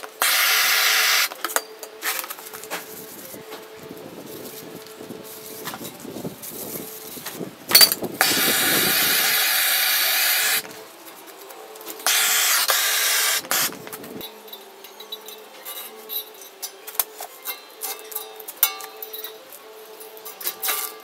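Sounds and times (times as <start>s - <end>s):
gas torch hissing: 0.0s - 11.0s, 11.7s - 14.3s.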